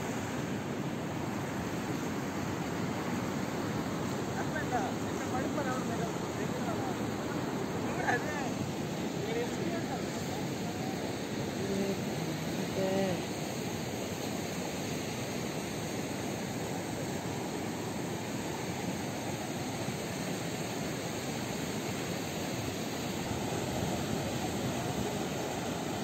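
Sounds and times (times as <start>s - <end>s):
rough sea surf roaring: 0.0s - 14.1s, 21.3s - 26.0s.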